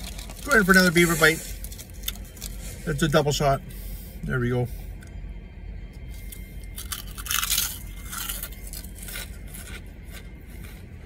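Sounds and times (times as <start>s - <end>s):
potato chip crunching: 0.0s - 1.0s, 6.7s - 10.8s
chewing crunches: 6.2s - 11.0s.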